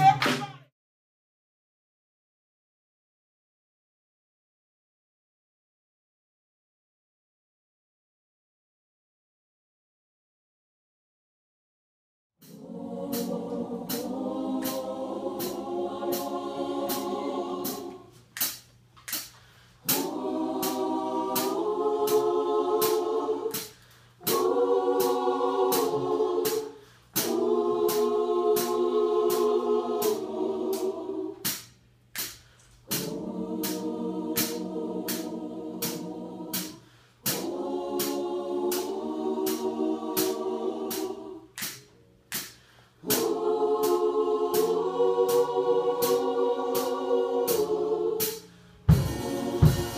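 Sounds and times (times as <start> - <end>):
sharp percussive beat: 0.0 - 0.7, 19.9 - 23.7, 48.2 - 49.9
gospel choir singing: 12.4 - 18.6, 19.8 - 31.7, 32.8 - 49.9.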